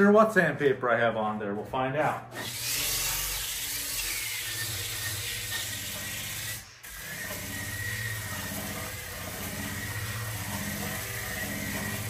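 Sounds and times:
polisher motor whine: 2.4 - 12.0.

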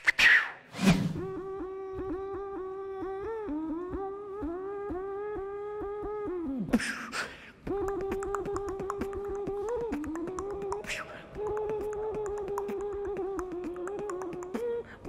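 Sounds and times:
hummed beatbox note: 1.2 - 15.0
rapid mouth clicks: 6.8 - 15.0.

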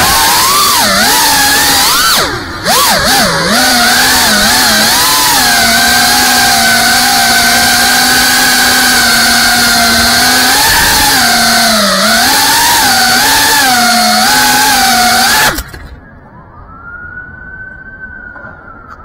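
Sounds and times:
drone motors whining: 0.0 - 16.2.

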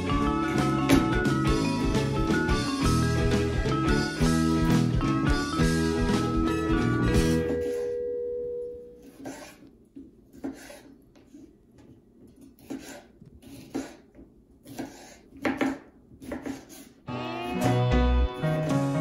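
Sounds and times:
knife slicing on cutting board: 12.3 - 17.0.

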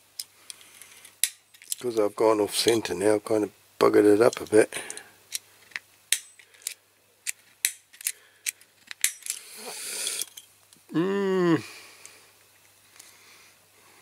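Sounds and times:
man humming hmm: 10.9 - 12.0.

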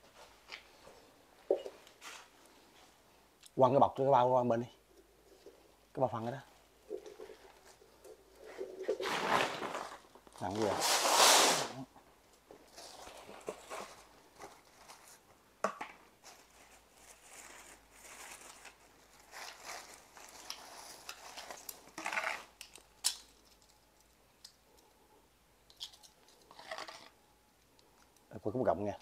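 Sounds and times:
plastic bag rustling: 6.9 - 11.8, 12.6 - 15.3, 16.2 - 22.6.

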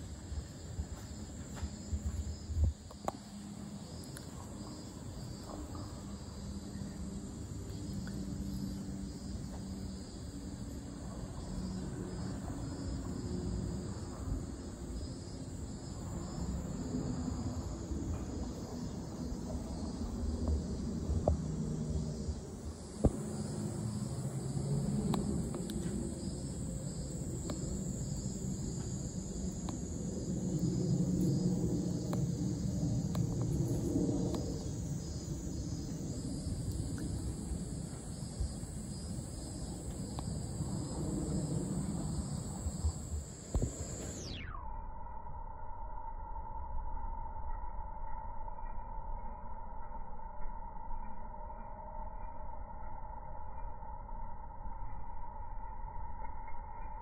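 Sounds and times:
insects chirping: 0.0 - 57.0
low rumble: 15.9 - 44.3.

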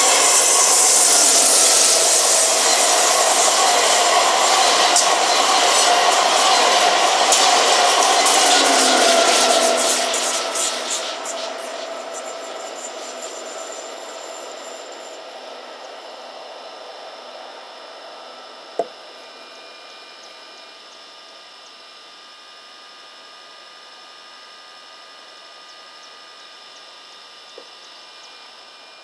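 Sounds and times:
electric train running: 0.0 - 18.3
thin high tones: 7.4 - 13.5.

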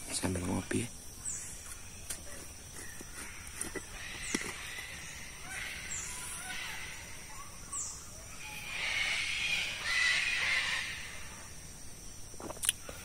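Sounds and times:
cockatoos screeching: 1.7 - 11.5.

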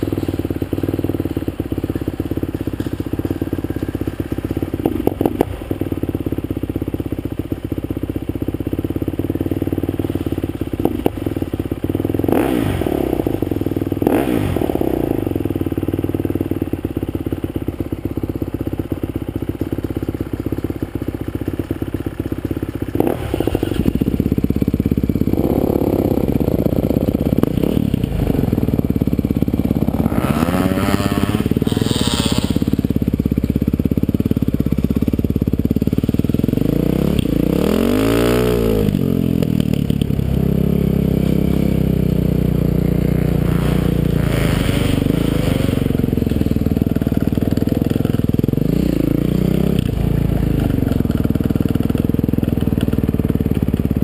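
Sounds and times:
dirt bike engine revving: 12.0 - 15.4, 22.9 - 33.3, 35.8 - 51.8.

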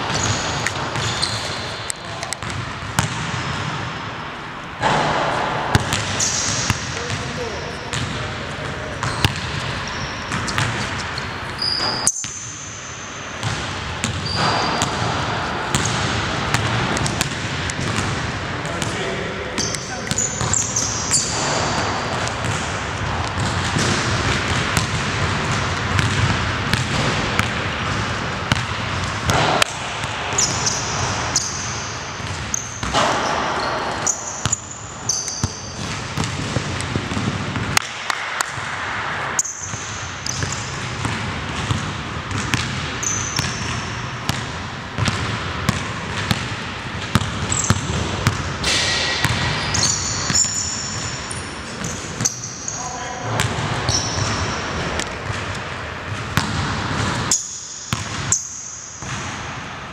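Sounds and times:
sneaker squeaks: 0.0 - 3.8, 5.7 - 24.4, 30.3 - 37.7, 39.4 - 44.4, 47.0 - 59.2
basketball bouncing on hardwood floor: 2.4 - 3.4, 4.8 - 7.2, 7.9 - 8.2, 9.0 - 9.7, 19.6 - 30.5, 35.4 - 38.6, 39.4 - 50.5, 56.1 - 58.4.

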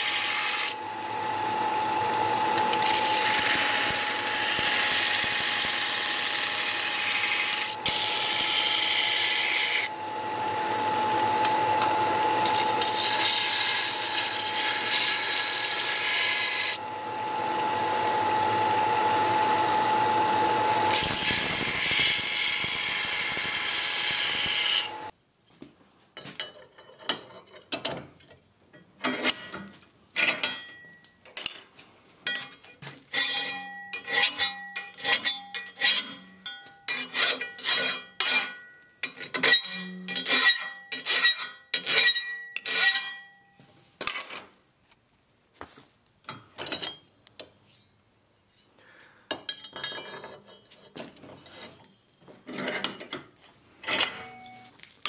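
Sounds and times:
belt grinder on steel: 0.0 - 25.1
hand file rasping on steel: 33.1 - 36.2, 36.9 - 43.2.

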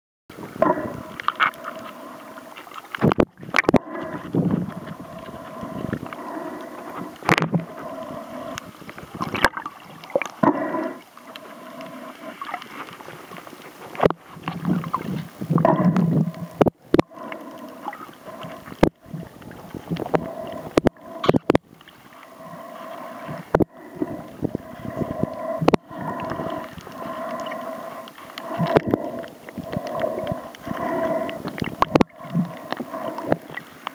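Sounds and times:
water rushing underwater: 0.3 - 33.9
steady hum: 13.6 - 33.9.

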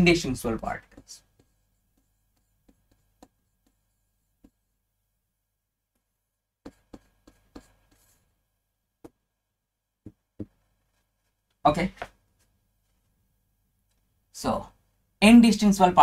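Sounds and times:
stylus tapping on display board: 9.0 - 9.2, 10.0 - 10.6.

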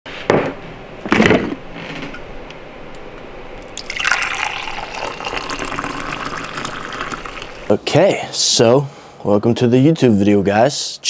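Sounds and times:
water running: 3.6 - 7.8.

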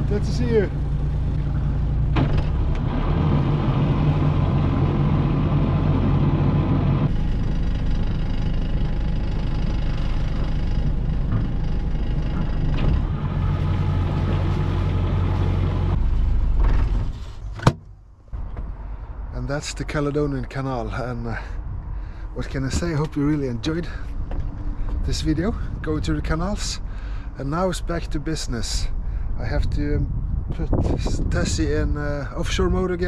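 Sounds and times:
diesel engine running: 0.0 - 17.6.

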